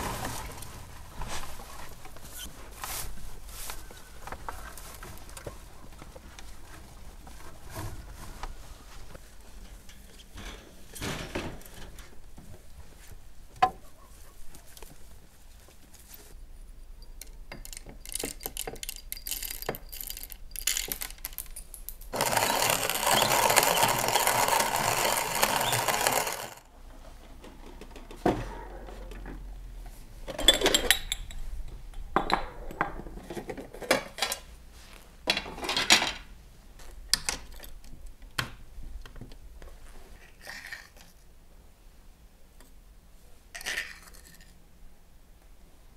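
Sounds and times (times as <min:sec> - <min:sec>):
hand coffee mill grinding: 0:17.7 - 0:26.7
coffee beans rattling: 0:18.0 - 0:26.7.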